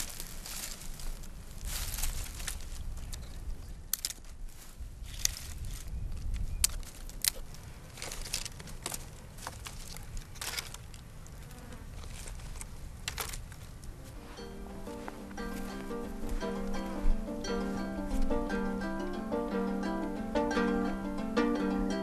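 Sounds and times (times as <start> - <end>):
dry brush rustling: 0.0 - 11.0, 11.9 - 20.2
sticks snapping: 3.9 - 4.3, 6.6 - 11.0.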